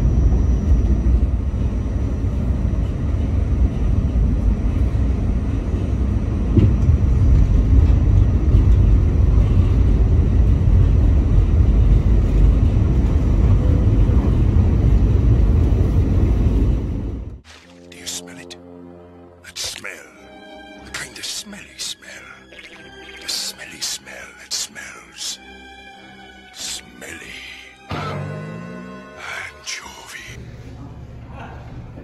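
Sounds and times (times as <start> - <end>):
subway train rumble: 0.0 - 17.4.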